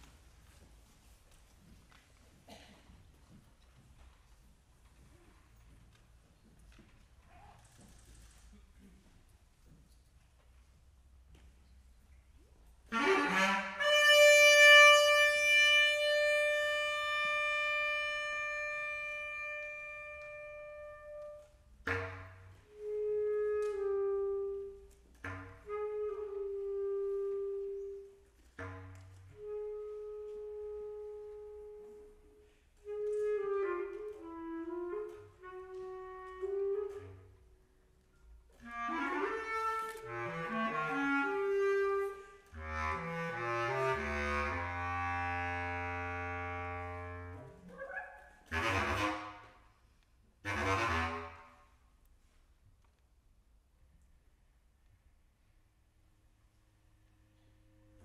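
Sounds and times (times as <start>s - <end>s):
bass clarinet playing: 12.8s - 37.7s, 38.5s - 49.6s, 50.4s - 51.6s.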